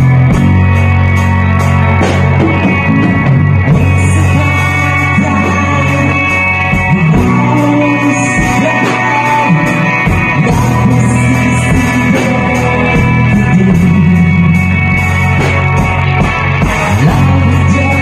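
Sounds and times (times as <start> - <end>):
drums: 0.0 - 18.0
electric guitar: 0.0 - 18.0
person singing: 3.7 - 15.7, 16.6 - 18.0.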